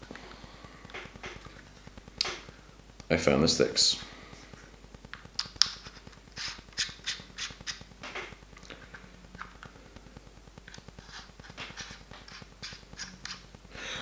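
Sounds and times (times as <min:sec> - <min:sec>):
plastic controller clicks and scrapes: 0:10.7 - 0:13.4.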